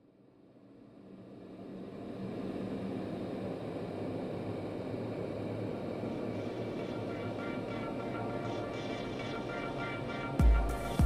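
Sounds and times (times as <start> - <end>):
faint music: 6.0 - 11.0.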